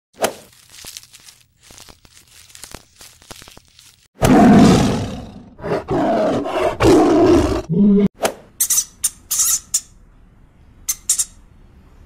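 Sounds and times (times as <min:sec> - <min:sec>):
tiger roaring: 0:04.2 - 0:08.1.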